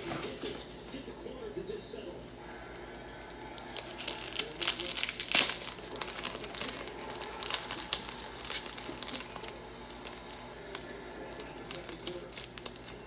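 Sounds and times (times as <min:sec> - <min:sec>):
packaging crinkling and rustling: 0:03.2 - 0:13.0.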